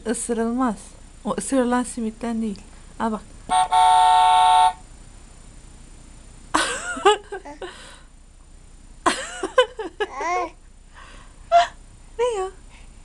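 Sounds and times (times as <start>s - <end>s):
baby babbling: 10.1s - 10.6s.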